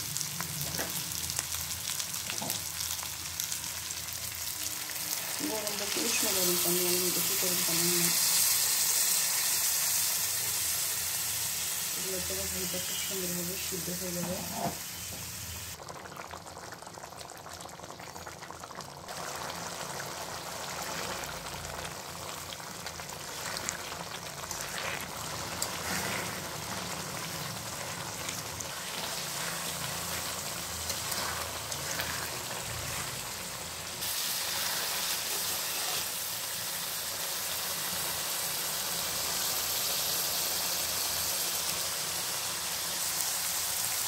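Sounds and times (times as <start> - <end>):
stew bubbling in a pan: 15.7 - 37.2.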